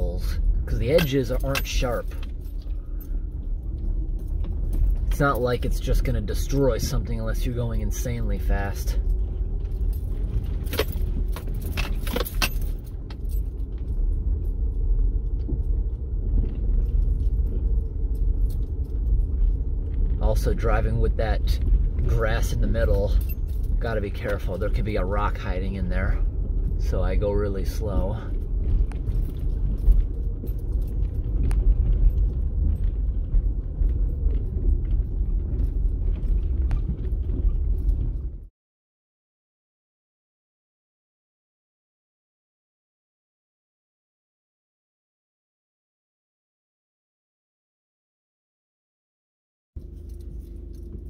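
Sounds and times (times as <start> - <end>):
car rattling over bumps: 0.0 - 38.5
engine and tyre rumble: 0.0 - 38.5, 49.8 - 51.0.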